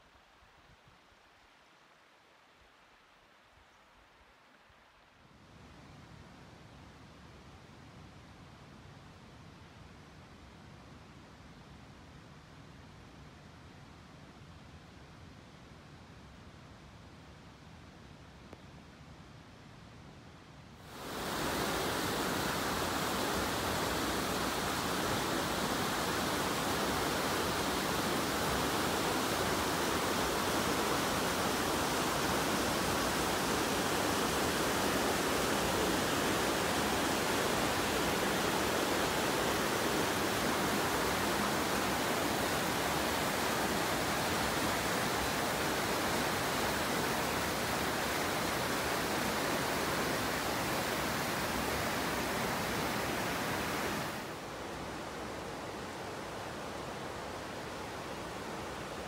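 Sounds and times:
fast-flowing river rushing: 20.9s - 59.0s.

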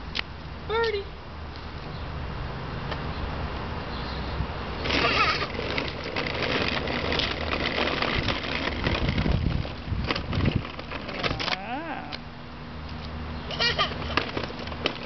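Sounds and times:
plastic wheels rattling on asphalt: 4.8s - 11.7s, 13.4s - 15.0s.

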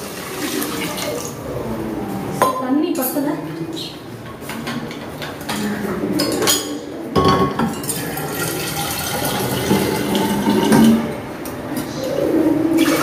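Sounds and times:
tap water running into container: 0.0s - 1.3s, 8.0s - 11.0s.

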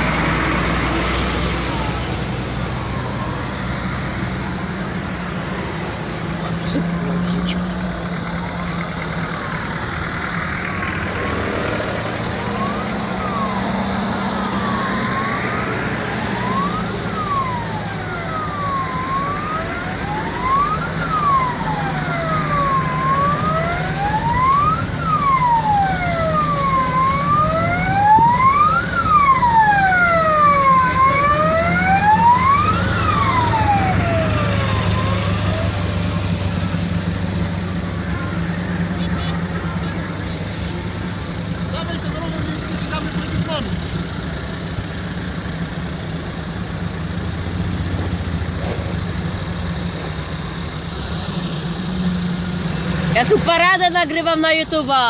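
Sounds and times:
siren wailing: 0.0s - 5.0s, 11.8s - 40.7s
jeep engines running: 0.0s - 55.0s.

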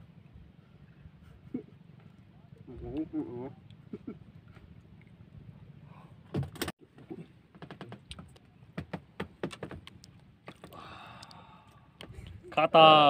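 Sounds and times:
sharp clicks and knocks in boat: 6.2s - 12.6s.

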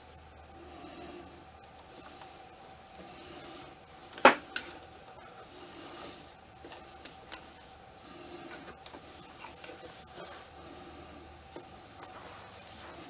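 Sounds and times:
cloth rustling: 8.4s - 13.0s.

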